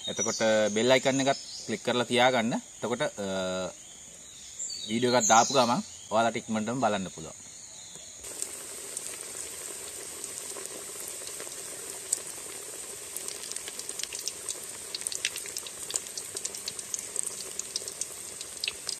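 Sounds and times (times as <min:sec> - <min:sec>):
food deep-frying in hot oil: 0:08.2 - 0:18.9
oil popping and crackling: 0:08.2 - 0:18.9.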